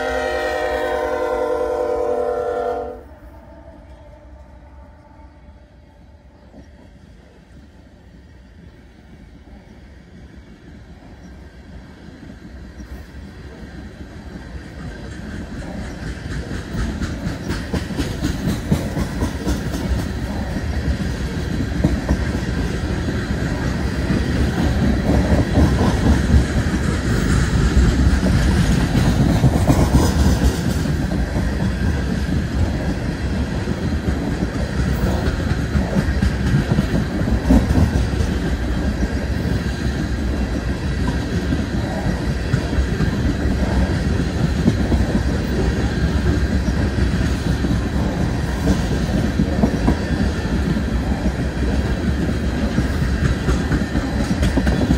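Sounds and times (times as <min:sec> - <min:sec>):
heavy train rumble: 0:00.0 - 0:54.9
train wheels clattering over rail joints: 0:13.9 - 0:54.9.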